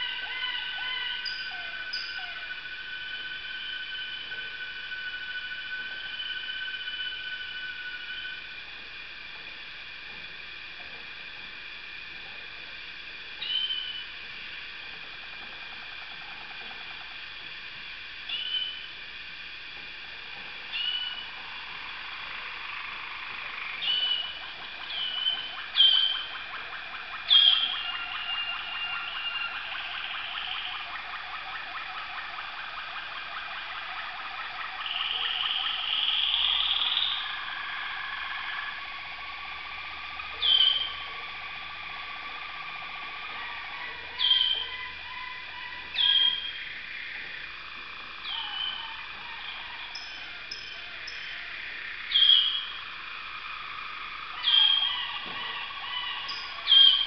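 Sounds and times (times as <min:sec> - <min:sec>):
canaries trilling song: 0:00.0 - 0:04.4, 0:13.4 - 0:14.0, 0:18.3 - 0:18.9, 0:20.7 - 0:21.4, 0:22.4 - 0:47.2, 0:48.2 - 0:51.5, 0:52.1 - 0:52.8, 0:54.3 - 0:57.0
sharp bird chirps: 0:23.8 - 0:31.0, 0:34.7 - 0:37.4, 0:40.3 - 0:41.0, 0:44.1 - 0:45.0, 0:46.0 - 0:46.7, 0:52.1 - 0:52.8, 0:54.4 - 0:57.0.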